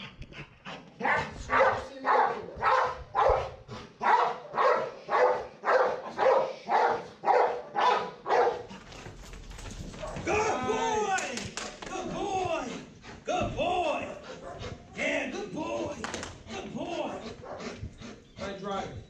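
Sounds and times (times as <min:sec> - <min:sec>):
dog barking: 0:01.0 - 0:08.8, 0:10.0 - 0:10.3, 0:14.3 - 0:15.0, 0:17.3 - 0:17.8.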